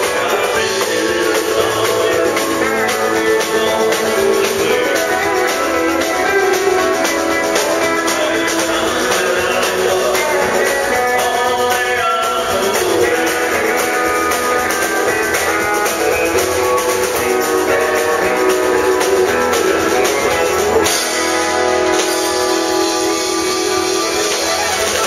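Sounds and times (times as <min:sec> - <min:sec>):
country band playing: 0:00.0 - 0:25.0
fiddle: 0:00.0 - 0:25.0
strummed acoustic guitars: 0:00.0 - 0:25.0.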